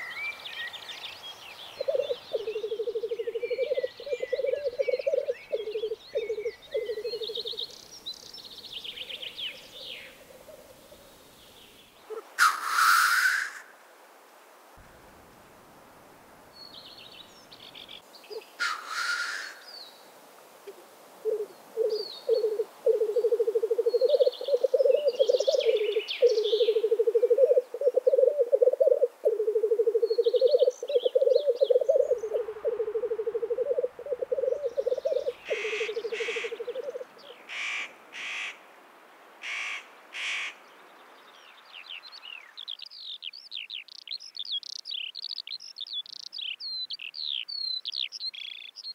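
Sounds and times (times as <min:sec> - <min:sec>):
small songbirds chirping: 0:00.0 - 0:12.1, 0:16.5 - 0:18.7, 0:21.3 - 0:37.6, 0:39.2 - 0:48.9
grouse bubbling cooing song: 0:01.8 - 0:07.6, 0:21.2 - 0:37.3
grouse hissing calls: 0:12.1 - 0:13.7, 0:18.3 - 0:19.7, 0:20.7 - 0:38.6.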